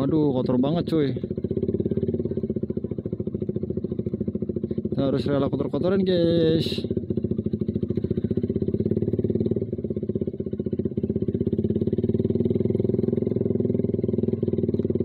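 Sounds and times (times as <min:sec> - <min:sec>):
motorcycle exhaust pulses: 0:00.0 - 0:15.0.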